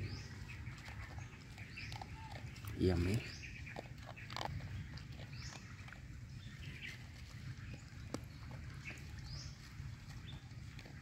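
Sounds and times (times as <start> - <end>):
birds chirping: 0.0 - 11.0
dog crunching kibble: 0.0 - 11.0.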